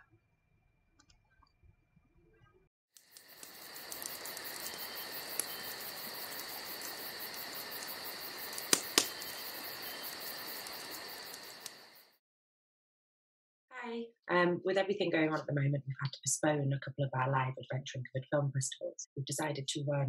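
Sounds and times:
sharp snaps: 3.0 - 11.9
crickets chirping: 3.0 - 12.2.

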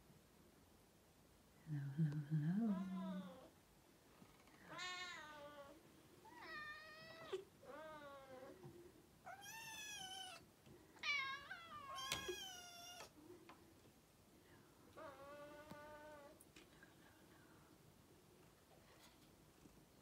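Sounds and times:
cat meowing: 9.3 - 10.4, 11.0 - 13.1.

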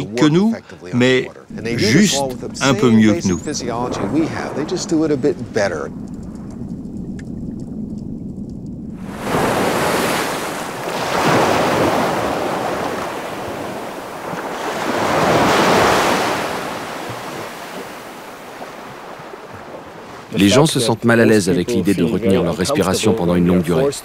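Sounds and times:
small waves breaking on beach: 9.0 - 20.6.

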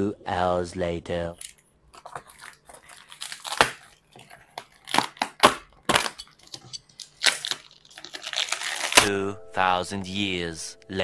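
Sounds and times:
plastic wrapping tearing and crinkling: 1.4 - 9.1.

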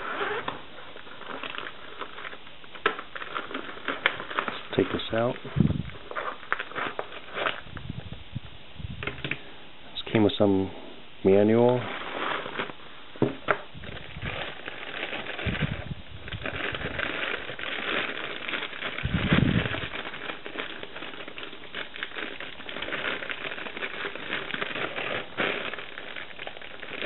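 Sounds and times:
plastic bag crinkling: 0.0 - 8.1, 11.3 - 27.0.

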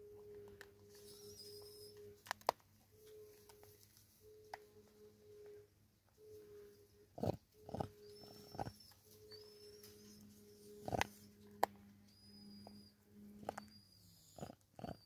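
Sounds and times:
low hum: 0.0 - 15.0
thin high whistle: 0.9 - 2.0.

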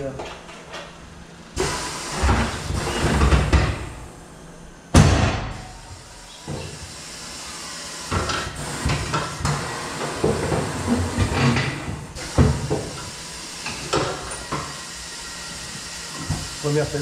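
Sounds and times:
loud clunk with rush of air: 4.9 - 5.8.

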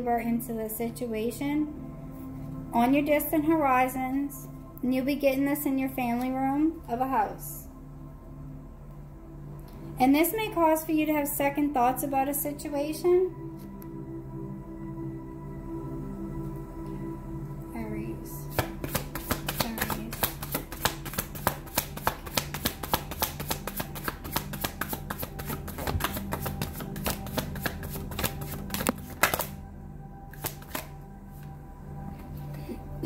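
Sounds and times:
soft background music: 0.0 - 33.0
cards shuffling: 18.5 - 29.6, 30.3 - 31.5.

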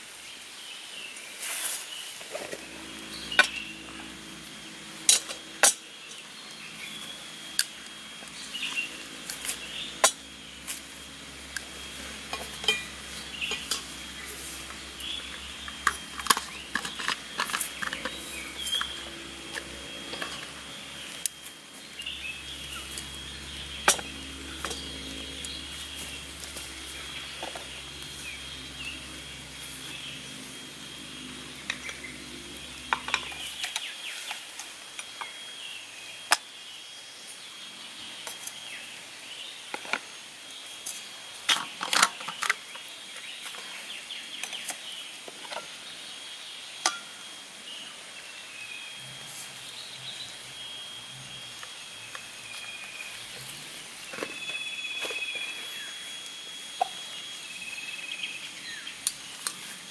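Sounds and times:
insects chirring: 0.0 - 59.9
low hum: 2.3 - 35.4.

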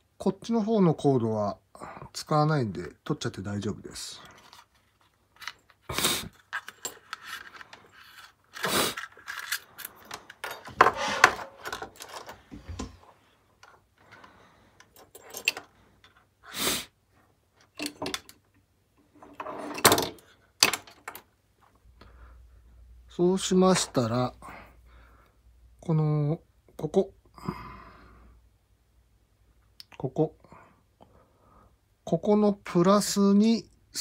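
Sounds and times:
cables rustling and scraping: 3.9 - 16.4, 19.0 - 22.7.

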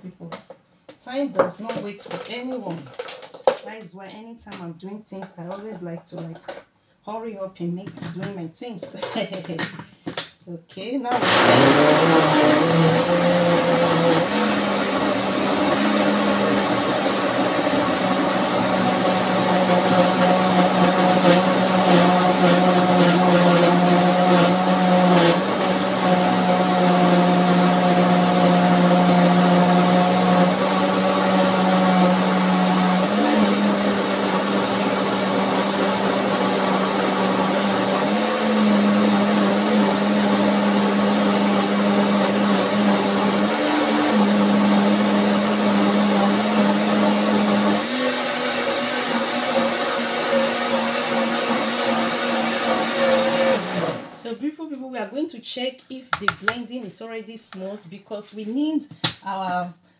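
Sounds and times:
blender motor running: 11.1 - 54.2.

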